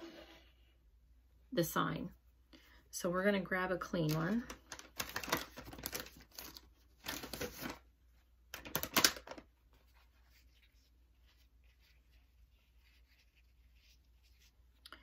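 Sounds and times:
baby wipe pack rustling: 4.5s - 7.8s, 8.6s - 14.5s.

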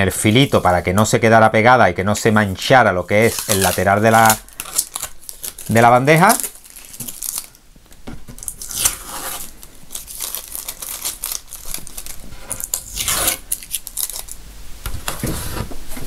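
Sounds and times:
adhesive tape peeling: 3.1s - 7.5s, 8.4s - 14.4s.

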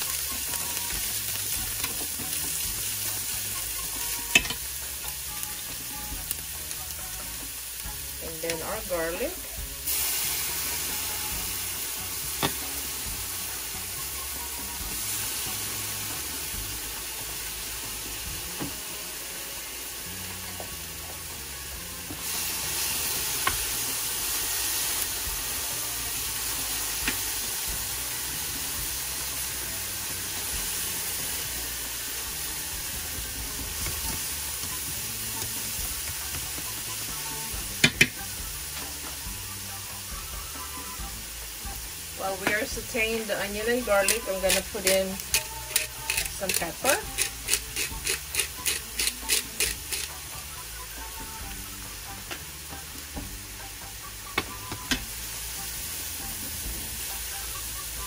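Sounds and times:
onion and garlic sizzling in oil: 0.0s - 58.0s
chopsticks tapping a pan: 3.5s - 4.7s, 37.8s - 39.2s, 44.0s - 50.1s.

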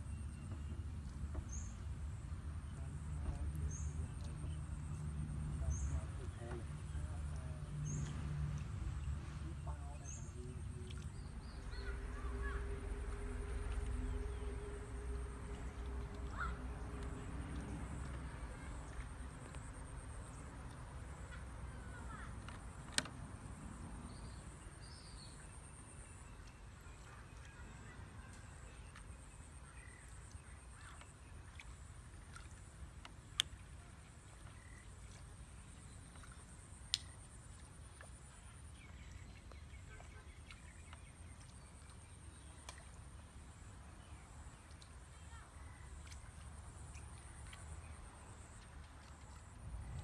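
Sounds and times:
faint bird calls: 9.6s - 18.0s
low rumble: 10.2s - 19.0s.

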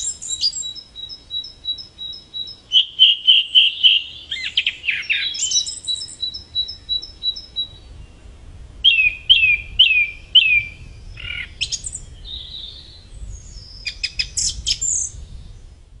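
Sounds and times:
song thrush singing: 0.0s - 16.0s.

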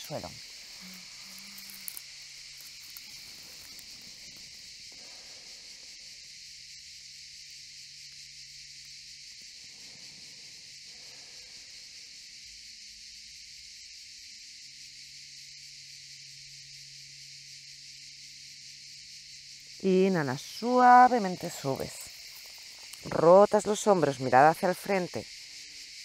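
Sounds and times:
cicadas singing: 0.0s - 26.0s.

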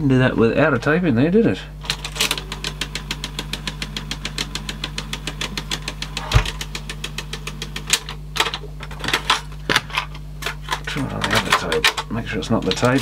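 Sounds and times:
steady hum: 0.0s - 13.0s
irregular clicks and knocks: 1.8s - 13.0s
cassette deck clicking rapidly: 1.9s - 9.2s, 10.9s - 13.0s.

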